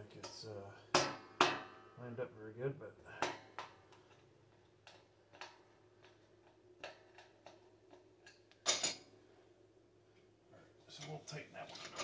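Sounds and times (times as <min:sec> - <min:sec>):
metal clatter: 0:11.7 - 0:12.0.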